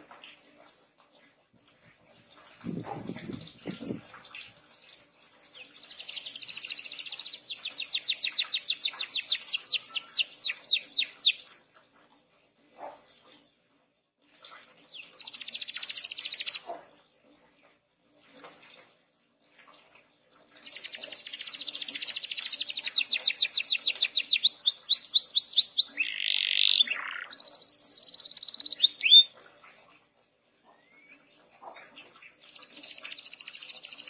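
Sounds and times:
canary singing: 6.0s - 11.4s, 20.7s - 29.3s.

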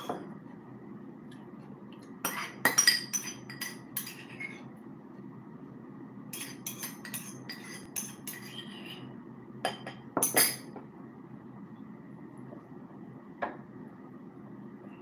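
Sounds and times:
cutlery clinking on dishes: 6.4s - 8.6s.

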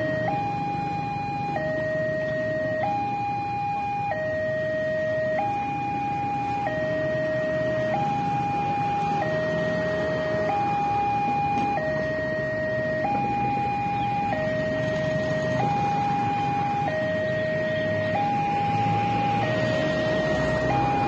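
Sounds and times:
road traffic rumble: 0.0s - 21.0s
two-tone level crossing alarm: 0.0s - 21.0s.

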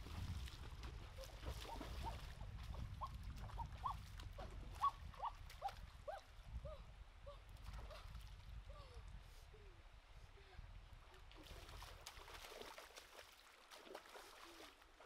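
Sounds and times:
water splashing and sloshing: 0.0s - 6.5s, 11.0s - 15.0s.

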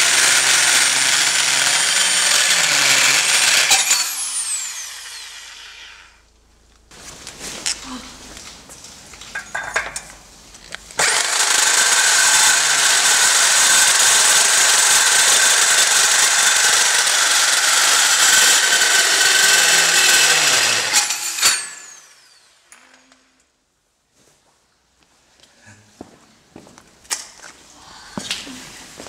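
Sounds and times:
power tool motor whining: 0.0s - 6.1s, 11.0s - 22.4s.

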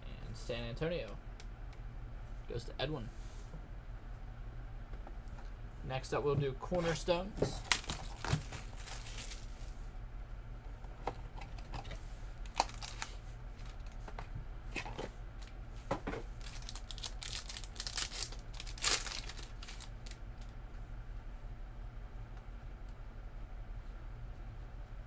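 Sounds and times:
steady low hum: 0.0s - 25.0s
packaging crinkling and tearing: 7.6s - 9.7s, 12.4s - 14.0s, 16.4s - 20.5s.

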